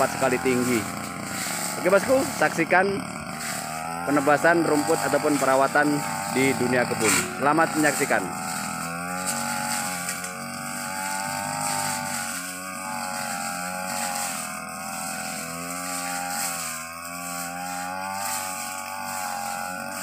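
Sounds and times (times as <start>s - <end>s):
brush cutter engine under load: 0.0s - 20.0s.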